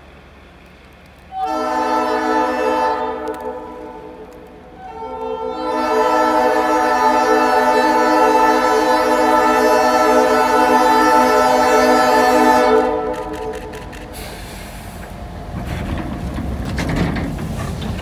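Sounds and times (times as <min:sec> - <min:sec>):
train air horn chord: 0:01.3 - 0:14.3.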